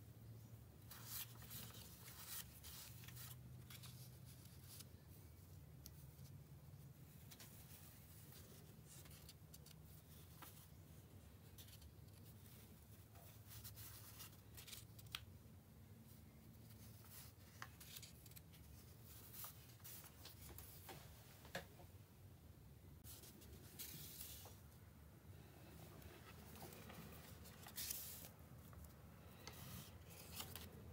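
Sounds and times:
paper sheets rustling: 0:00.9 - 0:04.9, 0:23.0 - 0:24.6, 0:26.0 - 0:30.9.

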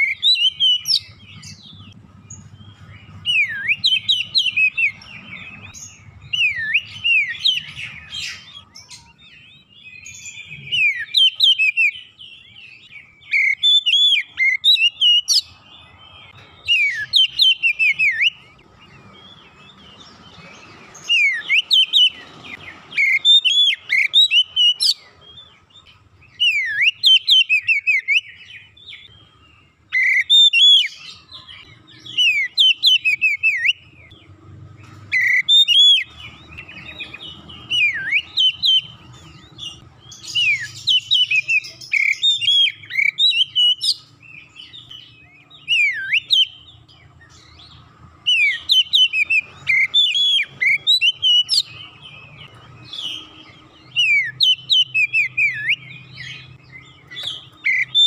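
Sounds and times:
bird singing whistled phrases: 0:00.0 - 0:01.6, 0:02.4 - 0:15.5, 0:16.6 - 0:18.6, 0:19.2 - 0:25.1, 0:26.3 - 0:29.2, 0:29.9 - 0:34.0, 0:35.1 - 0:46.7, 0:47.5 - 0:58.0.

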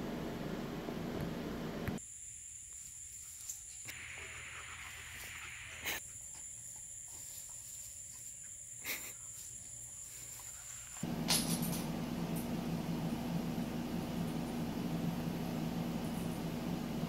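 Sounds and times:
low hum: 0:11.0 - 0:17.0.

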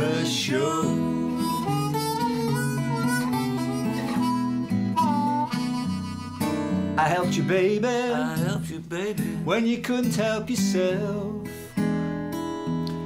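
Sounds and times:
person singing: 0:00.0 - 0:04.4, 0:07.0 - 0:11.4
acoustic guitar: 0:00.0 - 0:13.0
blues harmonica: 0:00.7 - 0:07.2.

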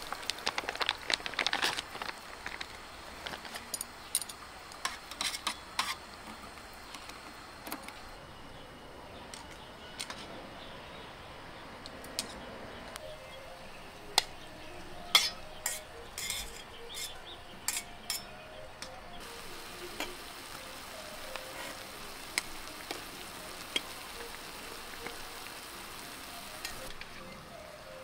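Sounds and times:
broth simmering hiss: 0:00.0 - 0:10.3, 0:12.9 - 0:28.0
chopsticks clinking against pot: 0:15.1 - 0:19.0.

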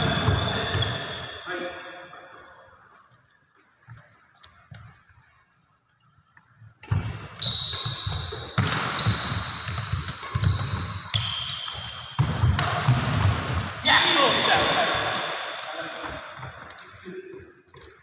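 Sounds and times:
racket striking shuttlecock: 0:11.6 - 0:13.7.

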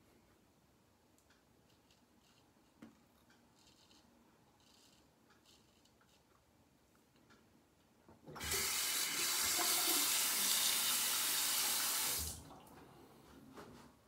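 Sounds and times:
tap water running into basin: 0:08.4 - 0:12.7.

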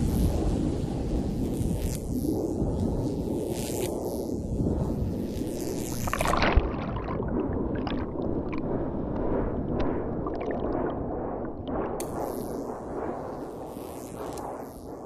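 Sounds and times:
underwater surf rumble: 0:00.0 - 0:15.0
bubble pops and crackles: 0:05.5 - 0:12.7.

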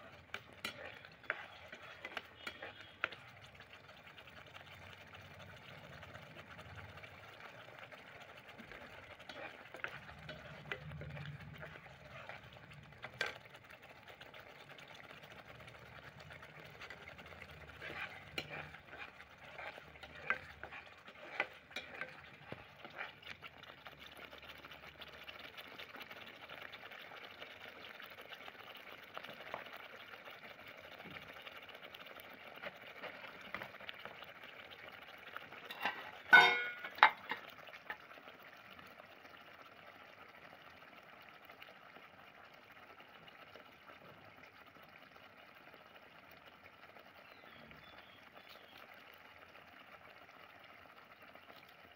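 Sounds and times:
metal spoon scraping pan: 0:00.0 - 0:04.5, 0:06.7 - 0:14.0, 0:15.2 - 0:23.4, 0:35.6 - 0:37.5
curry bubbling and sizzling: 0:00.0 - 0:51.9.

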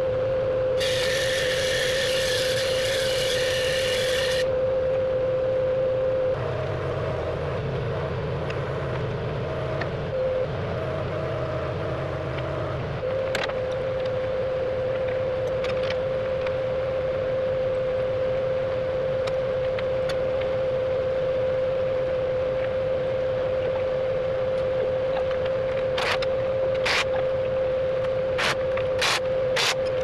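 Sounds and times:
constant high whine: 0:00.0 - 0:30.0
heavy machinery running: 0:00.8 - 0:04.5.

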